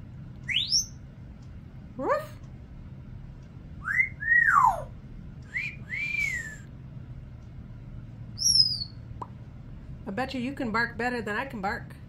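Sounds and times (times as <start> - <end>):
parrot whistling: 0.5 - 1.0, 3.8 - 4.9, 5.5 - 6.7, 8.4 - 9.0.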